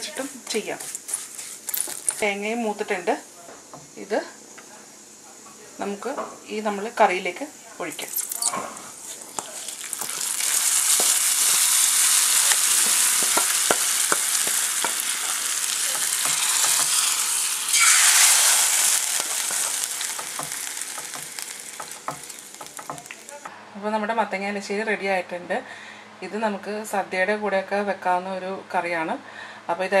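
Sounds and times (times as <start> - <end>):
oil sizzling in a pan: 0.0 - 3.7, 7.0 - 23.5
spoon scraping and stirring: 8.0 - 14.6.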